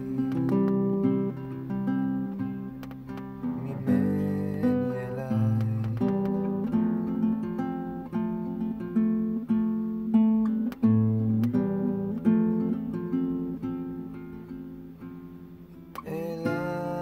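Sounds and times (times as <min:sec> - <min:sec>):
acoustic guitar playing: 0:00.0 - 0:17.0.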